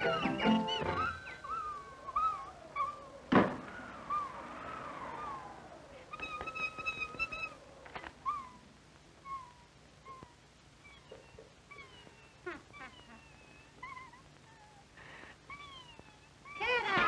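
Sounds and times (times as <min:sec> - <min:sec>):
cartoon bird whimpering cries: 0:00.0 - 0:03.3, 0:08.2 - 0:17.0
faint clicks: 0:07.8 - 0:09.3.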